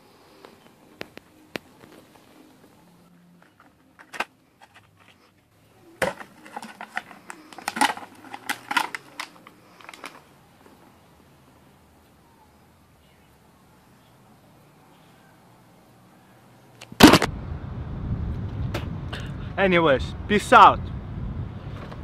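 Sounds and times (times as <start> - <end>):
foil seal crinkling: 6.0 - 10.2.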